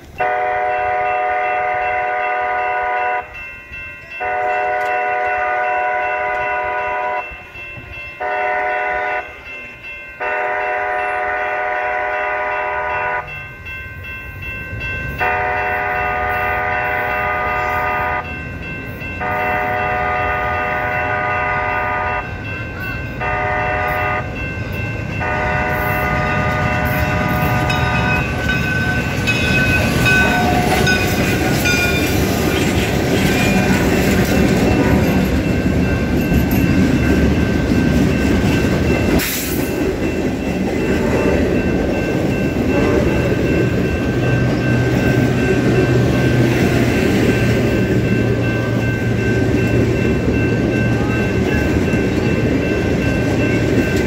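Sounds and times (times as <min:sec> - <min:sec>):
heavy rumble of train wheels: 0:00.0 - 0:54.0
steam locomotive chime whistle: 0:00.0 - 0:54.0.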